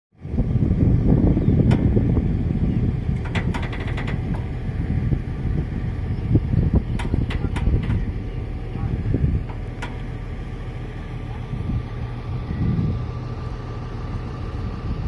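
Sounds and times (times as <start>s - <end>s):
diesel engine rumbling: 0.2s - 15.0s
rattle of ticks: 3.1s - 4.6s, 6.8s - 8.1s
sharp metallic clicks: 3.2s - 4.5s, 7.0s - 8.1s.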